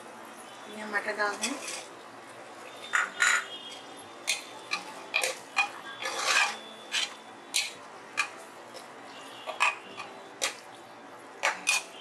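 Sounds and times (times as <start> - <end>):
metal ladle scraping pot: 1.3 - 2.0, 2.8 - 8.4, 9.4 - 10.6, 11.4 - 12.0.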